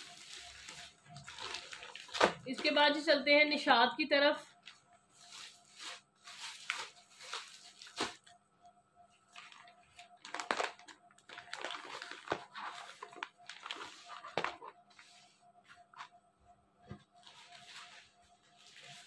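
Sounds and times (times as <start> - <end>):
plastic bag rustling and crinkling: 0.0 - 2.8, 4.6 - 8.3, 9.3 - 15.4, 17.1 - 19.0.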